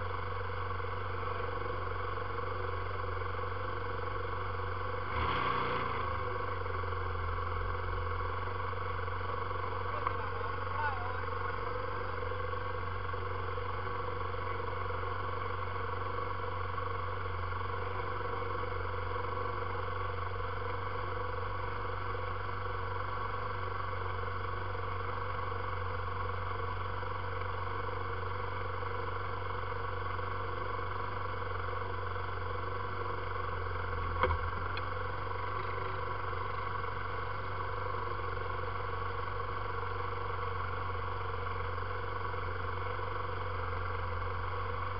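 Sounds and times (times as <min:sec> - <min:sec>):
atv engine idling: 0:00.0 - 0:44.9.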